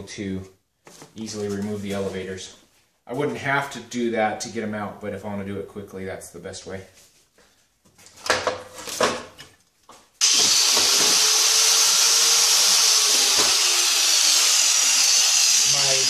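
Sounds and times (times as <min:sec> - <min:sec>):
angle grinder hissing whine: 0:10.2 - 0:16.0.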